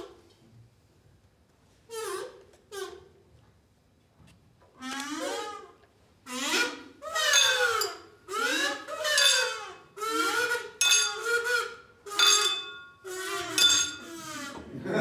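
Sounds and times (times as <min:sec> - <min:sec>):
squeaky puppet voices: 0:06.3 - 0:12.4, 0:13.0 - 0:14.6.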